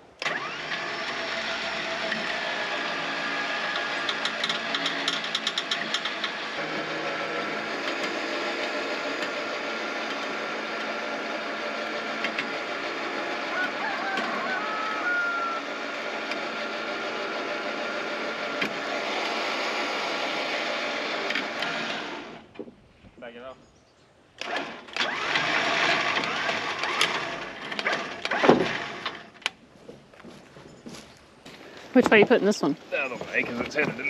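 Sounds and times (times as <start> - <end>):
rapid clicking of winch: 0.2 - 15.0, 15.6 - 22.6, 24.4 - 29.6
winch motor running: 0.2 - 22.6, 24.4 - 29.6.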